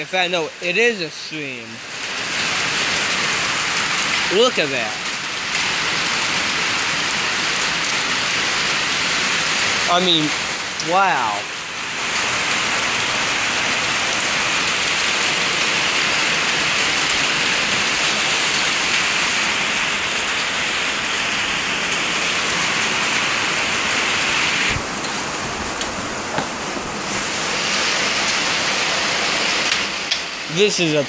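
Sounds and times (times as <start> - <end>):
heavy rain pouring: 0.0 - 31.0.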